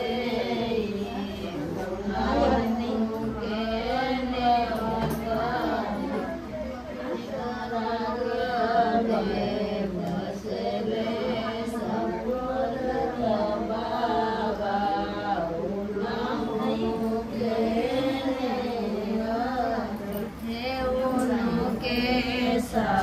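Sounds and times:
voices singing devotional chant: 0.0 - 23.0.

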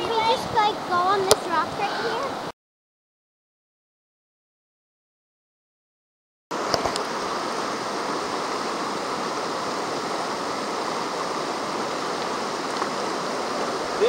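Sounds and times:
river water rushing: 0.0 - 2.5, 6.6 - 14.0.

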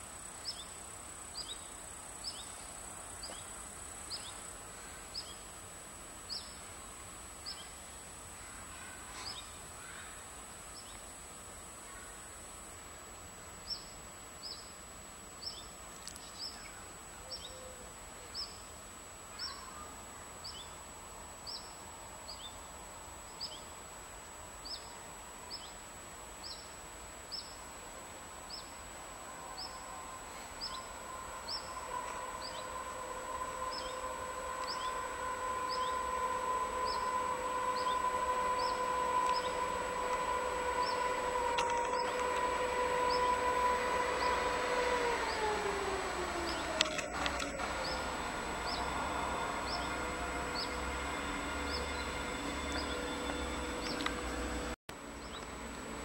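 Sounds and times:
diesel locomotive engine drone: 0.0 - 56.0.

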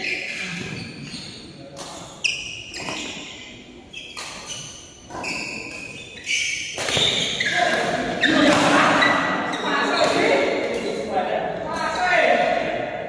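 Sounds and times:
badminton racket hits: 4.1 - 11.2.

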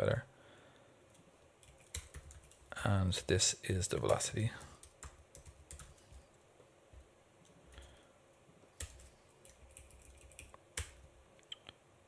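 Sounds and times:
computer keyboard typing: 1.6 - 2.8, 3.9 - 6.2, 8.8 - 11.1.

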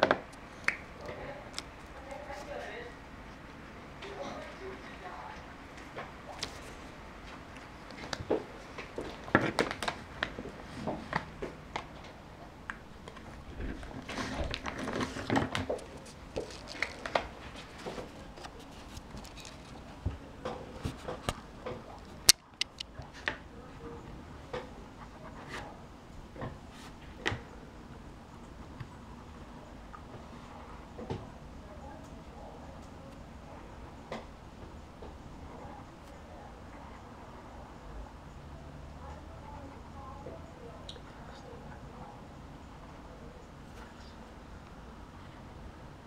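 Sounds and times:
handling taps and rustling: 7.3 - 23.4
sharp click: 22.2 - 22.9.

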